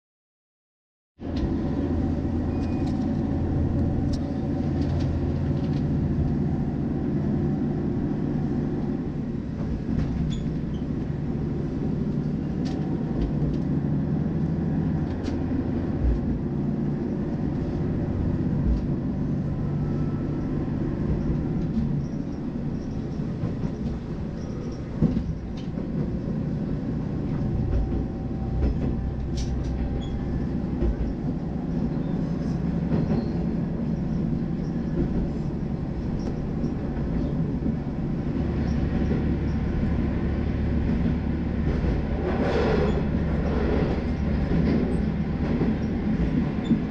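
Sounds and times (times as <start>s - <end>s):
railcar engine drone: 1.2s - 46.9s.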